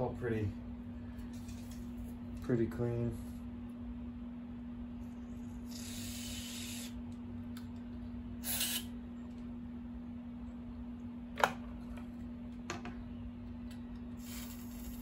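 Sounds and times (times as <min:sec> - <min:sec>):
steady low hum: 0:00.0 - 0:15.0
aerosol spray hiss: 0:05.7 - 0:07.0, 0:08.4 - 0:08.9.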